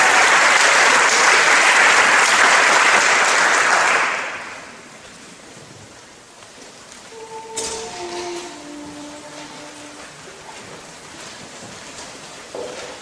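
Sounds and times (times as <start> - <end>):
audience applause: 0.0 - 4.8.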